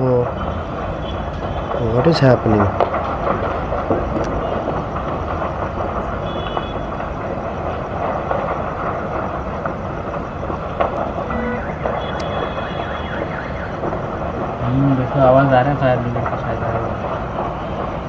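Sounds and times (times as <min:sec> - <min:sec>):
city traffic rumble: 0:00.0 - 0:18.0
faint high beeps: 0:11.3 - 0:13.6.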